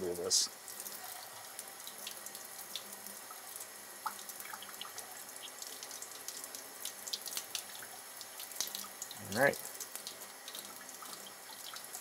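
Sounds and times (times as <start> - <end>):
tap water running: 0.0 - 12.0
water splashes and drips: 0.0 - 12.0.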